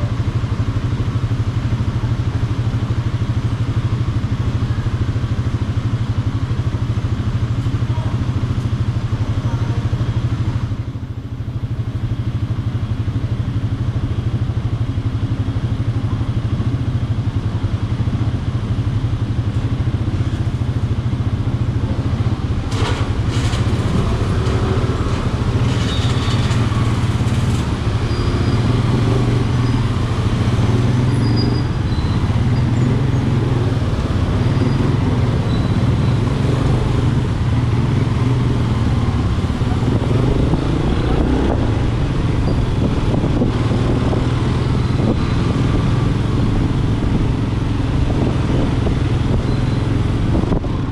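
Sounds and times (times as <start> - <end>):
motorcycle engine idling: 0.0 - 22.6.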